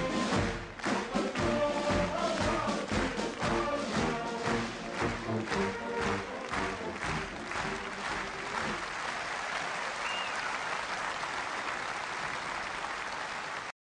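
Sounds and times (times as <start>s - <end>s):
military brass band: 0.0s - 9.0s
large audience applauding: 0.0s - 13.7s.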